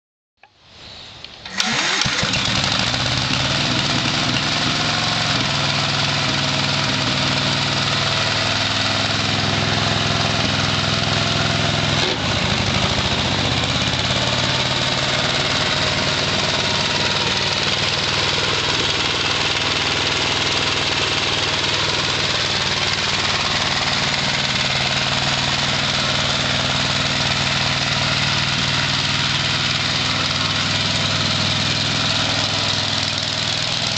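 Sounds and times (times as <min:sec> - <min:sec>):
click: 0:01.2 - 0:01.6
walk-behind tractor engine running: 0:01.4 - 0:33.9.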